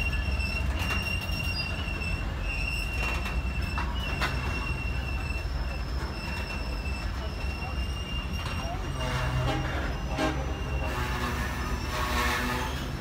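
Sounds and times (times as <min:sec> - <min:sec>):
low rumble of railcars: 0:00.0 - 0:13.0
train wheels squealing on rails: 0:00.0 - 0:13.0.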